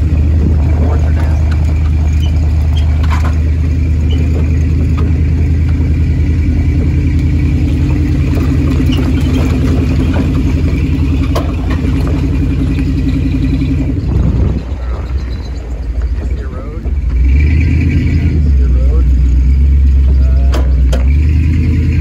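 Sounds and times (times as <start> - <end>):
tyres on gravel: 0.0 - 22.0
van engine droning: 0.0 - 22.0
body rattles: 0.5 - 17.1.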